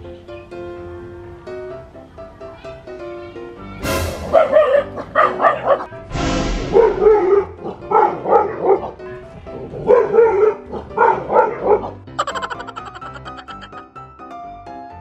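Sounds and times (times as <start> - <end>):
background music: 3.4 - 15.0
dogs barking: 4.2 - 5.9, 6.7 - 13.8.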